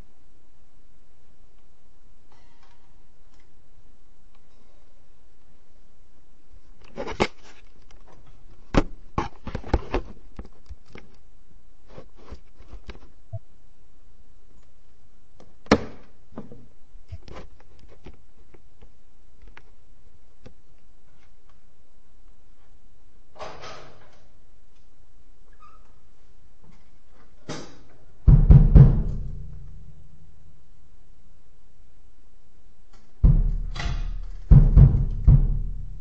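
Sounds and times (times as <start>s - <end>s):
steady low hiss: 0.0s - 36.0s
knocks and clicks: 33.2s - 36.0s.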